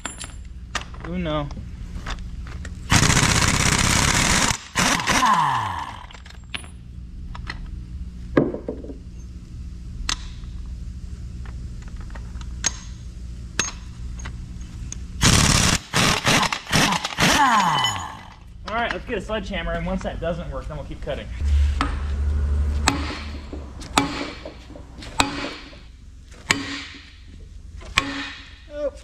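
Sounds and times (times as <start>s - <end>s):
air motor whine winding down: 2.9s - 6.2s, 15.2s - 18.4s, 21.2s - 26.0s
pneumatic impact wrench hammering: 2.9s - 6.2s, 15.2s - 18.4s, 22.8s - 28.7s.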